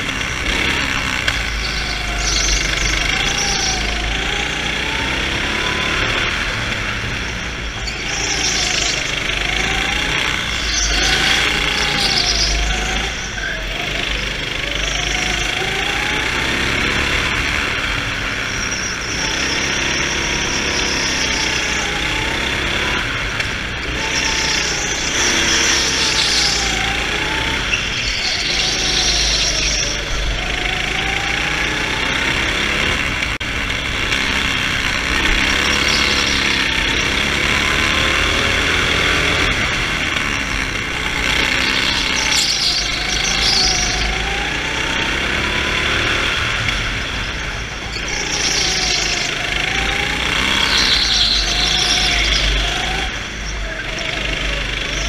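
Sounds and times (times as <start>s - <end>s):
go-kart engine revving: 0.0s - 55.0s
wind and road noise: 0.0s - 55.0s.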